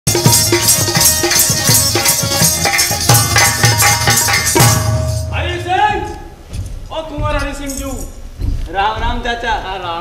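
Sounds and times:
jingle of handheld percussion: 0.1 - 6.1, 7.3 - 8.2
hand drum beating: 0.1 - 6.4.

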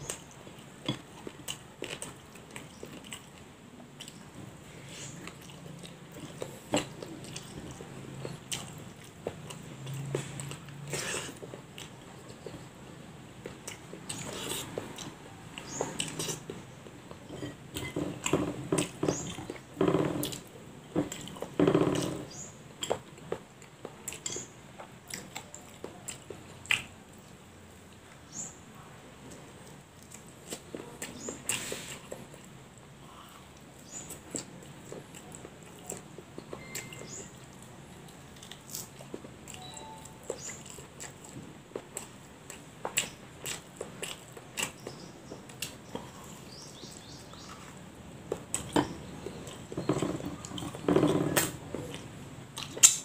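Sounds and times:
person chewing: 0.0 - 3.4, 4.0 - 12.8, 13.4 - 22.2, 33.1 - 53.0
person chewing and biting: 38.3 - 46.5
wet mouth clicks: 52.6 - 53.0.

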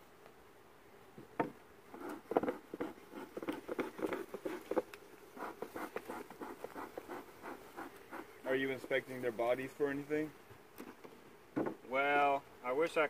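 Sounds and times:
bellows smoker puffing: 1.9 - 8.5.

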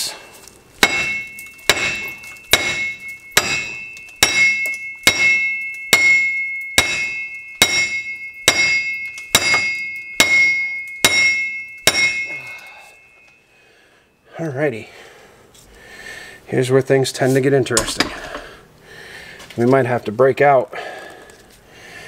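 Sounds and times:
hammer striking metal: 0.8 - 13.3.

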